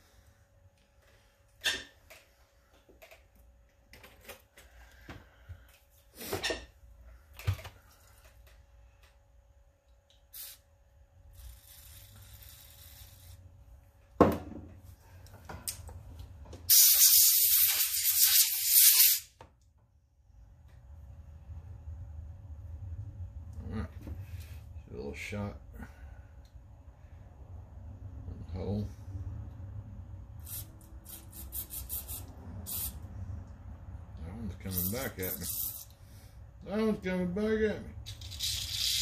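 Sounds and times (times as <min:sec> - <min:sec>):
aerosol spray hissing: 0:10.3 - 0:10.6, 0:16.7 - 0:19.3, 0:30.4 - 0:33.0.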